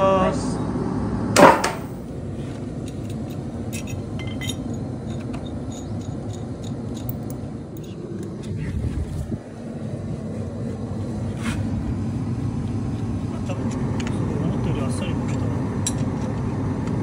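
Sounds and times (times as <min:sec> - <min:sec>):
loud knock: 0:01.4 - 0:01.9
light metallic clinks: 0:02.8 - 0:08.0.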